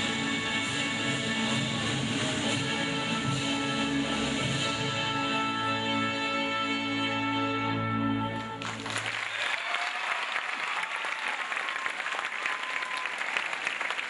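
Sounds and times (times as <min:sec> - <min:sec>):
audience applause: 0:08.6 - 0:14.0.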